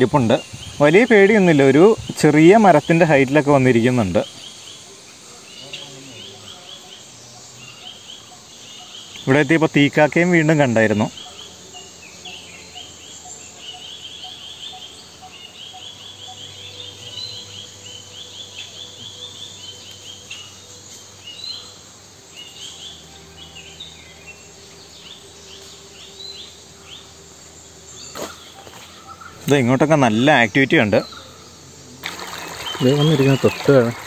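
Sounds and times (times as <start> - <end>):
high chirping calls: 27.9 - 34.0.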